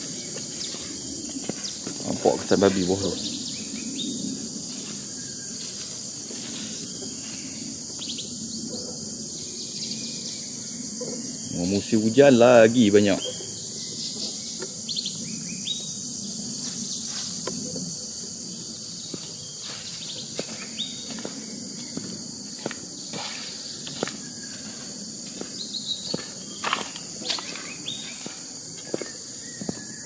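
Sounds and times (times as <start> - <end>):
footsteps on grass and leaves: 0.0 - 3.3, 4.3 - 8.1, 18.9 - 30.0
insects droning: 0.0 - 30.0.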